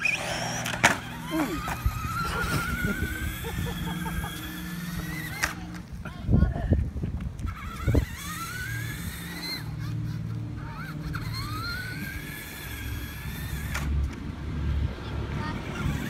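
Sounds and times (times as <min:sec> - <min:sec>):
toy truck motor whining: 0:00.0 - 0:05.9, 0:07.4 - 0:14.2, 0:15.3 - 0:16.0.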